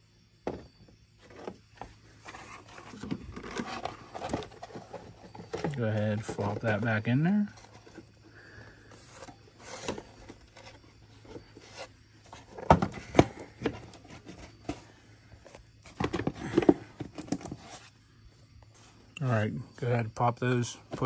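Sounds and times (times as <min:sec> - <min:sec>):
plastic rubbing and scraping: 0:01.2 - 0:18.0.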